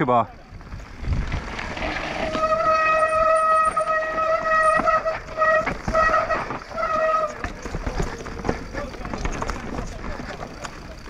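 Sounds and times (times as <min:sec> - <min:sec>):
tyres rumbling over rough trail: 0:00.0 - 0:11.0
bike disc brakes squealing: 0:01.4 - 0:11.0.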